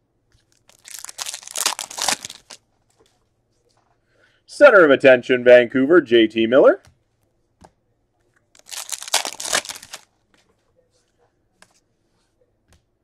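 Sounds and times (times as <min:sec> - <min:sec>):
trading cards rustling: 0:00.4 - 0:02.6, 0:08.6 - 0:10.1.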